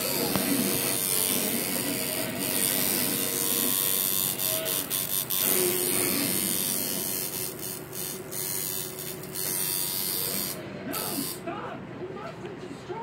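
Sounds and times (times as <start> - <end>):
tattoo machine running: 0.0 - 11.4.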